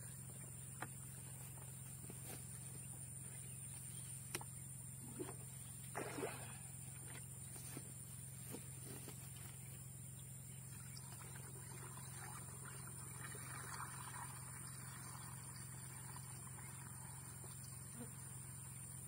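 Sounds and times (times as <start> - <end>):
steady low hum: 0.0 - 19.0
water pouring into plastic tank: 10.8 - 17.8.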